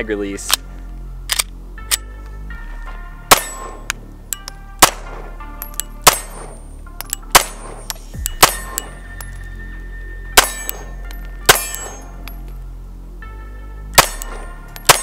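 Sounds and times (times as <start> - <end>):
pistol shots: 3.3 - 9.3, 10.4 - 12.3, 14.0 - 15.0
metallic ringing: 3.3 - 9.6, 10.4 - 12.6, 14.0 - 15.0.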